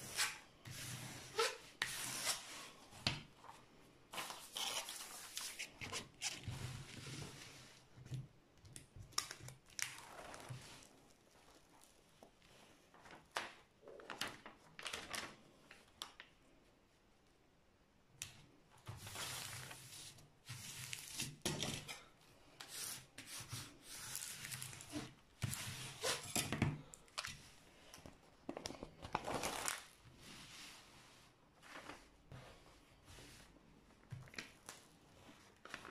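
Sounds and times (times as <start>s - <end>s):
plastic film rustling and crinkling: 12.9s - 16.3s, 28.5s - 30.4s, 34.0s - 35.9s.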